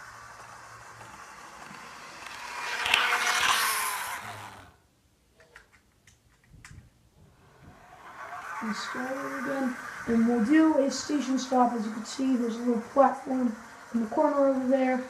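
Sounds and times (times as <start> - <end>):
model train whirring with squeak: 0.0 - 4.7, 7.4 - 15.0.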